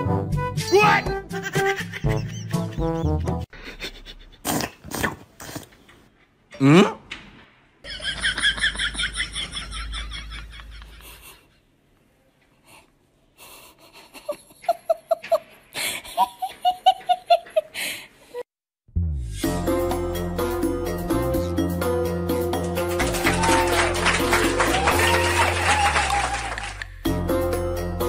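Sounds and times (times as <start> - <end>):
people laughing: 1.4 - 4.3, 7.9 - 11.5, 23.0 - 26.7.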